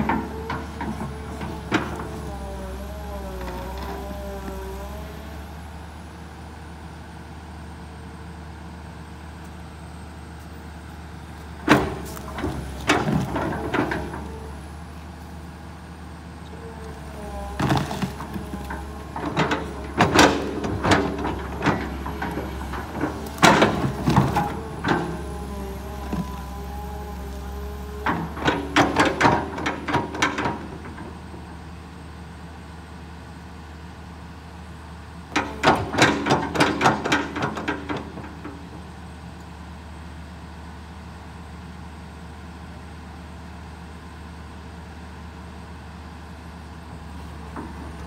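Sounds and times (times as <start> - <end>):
hydraulics whining: 0.0 - 32.8, 46.8 - 48.0
excavator diesel engine running: 0.0 - 48.0.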